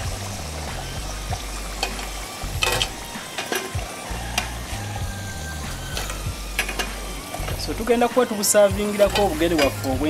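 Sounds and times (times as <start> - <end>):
oil sizzling: 0.0 - 10.0
metal skimmer clinking: 1.7 - 3.8, 5.9 - 10.0.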